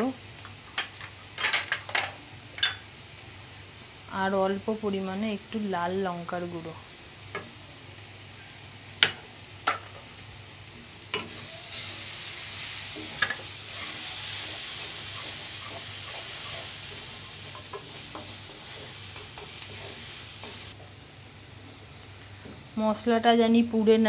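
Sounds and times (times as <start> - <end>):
onions sizzling in oil: 0.0 - 24.0
spoon stirring and knocking pan: 12.9 - 20.8.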